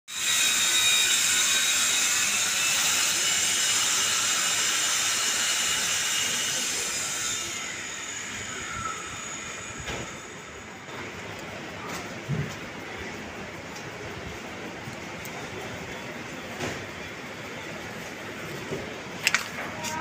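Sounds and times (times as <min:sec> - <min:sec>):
machinery hiss and whine: 0:00.1 - 0:20.0.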